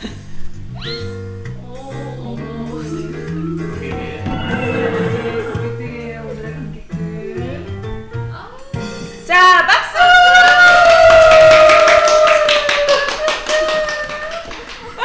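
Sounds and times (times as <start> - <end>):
child squealing: 0.8 - 1.2.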